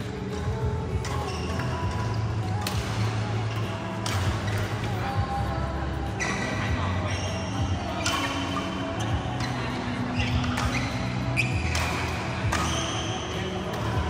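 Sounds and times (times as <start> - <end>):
shoes squeaking on court: 0.0 - 14.0
racket hitting shuttlecock: 0.3 - 5.0, 10.2 - 14.0.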